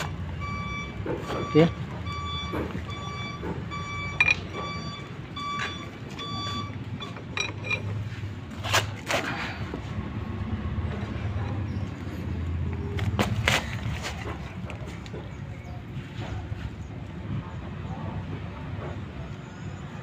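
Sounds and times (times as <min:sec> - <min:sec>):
vehicle reversing beeper: 0:00.0 - 0:08.1
idling engine rumble: 0:00.0 - 0:20.0.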